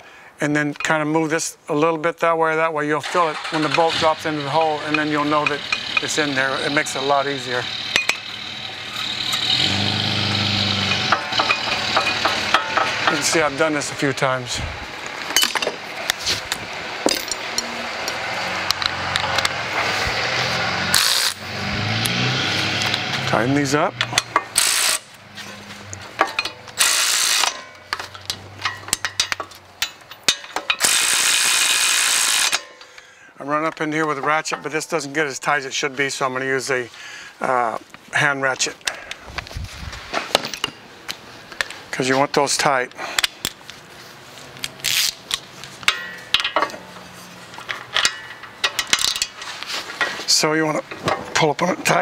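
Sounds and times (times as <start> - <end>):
power ratchet spinning bolts: 3.0 - 14.0, 20.9 - 21.4, 24.0 - 25.1, 26.2 - 32.8
metal scrape: 3.1 - 14.7, 22.2 - 31.0, 46.8 - 50.4
ratchet clicks: 4.8 - 6.2, 20.9 - 21.4, 24.0 - 25.1, 26.4 - 27.7, 28.9 - 32.9
ringing metal clink: 7.9 - 8.3, 45.9 - 46.7.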